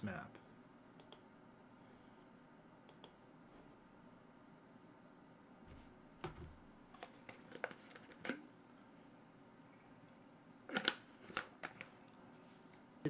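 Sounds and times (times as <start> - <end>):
computer clicks: 1.0 - 1.3, 2.8 - 3.2.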